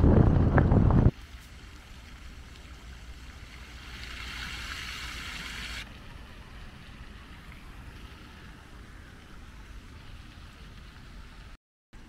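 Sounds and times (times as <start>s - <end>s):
wind rumble on microphone: 0.0s - 1.2s
fountain water spraying hiss: 1.1s - 12.0s.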